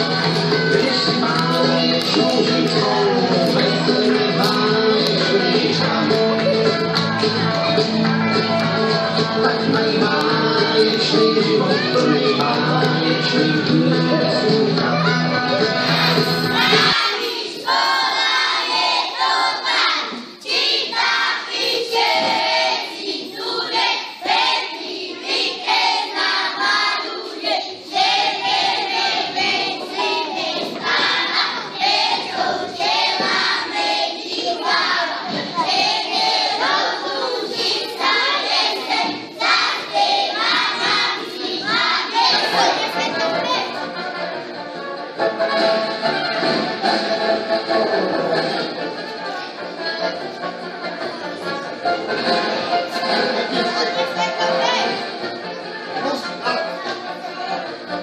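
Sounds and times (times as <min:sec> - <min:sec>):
guitar dance music: 0:00.0 - 0:18.6, 0:28.3 - 0:58.0
young children singing: 0:00.0 - 0:44.1.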